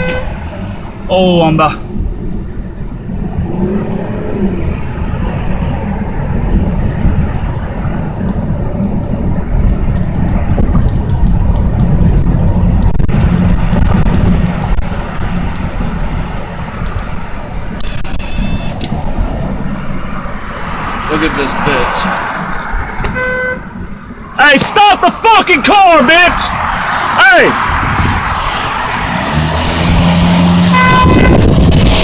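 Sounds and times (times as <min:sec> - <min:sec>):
car engine and tyre rumble: 0:00.0 - 0:32.0.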